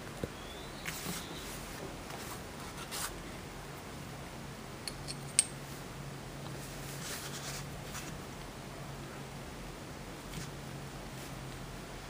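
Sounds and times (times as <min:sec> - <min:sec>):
soft rubbing: 0:06.6 - 0:08.2.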